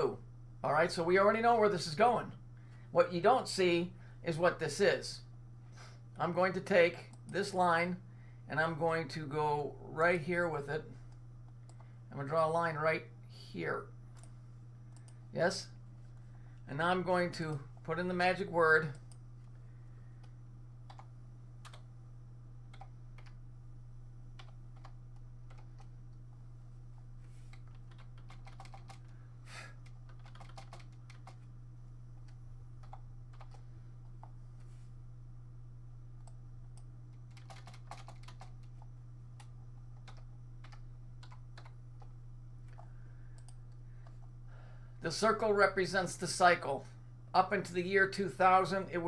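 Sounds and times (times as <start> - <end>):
steady low hum: 0.0 - 49.0
typing on computer keyboard: 27.5 - 29.0, 30.1 - 31.4, 32.2 - 33.6, 37.3 - 42.1.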